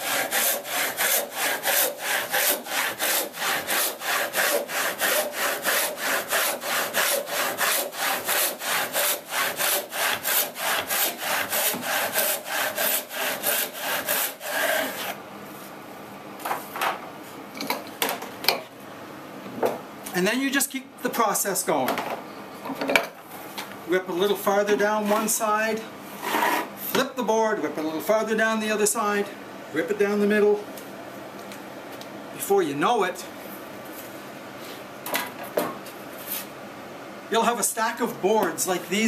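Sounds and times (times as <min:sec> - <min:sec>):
knocks of saw and board: 0:00.0 - 0:15.1
hand saw sawing wood: 0:00.0 - 0:15.2.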